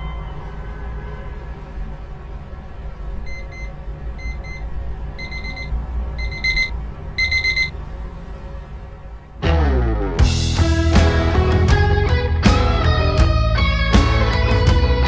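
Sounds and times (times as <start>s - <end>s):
phone alarm double beeps: 3.3s - 7.7s.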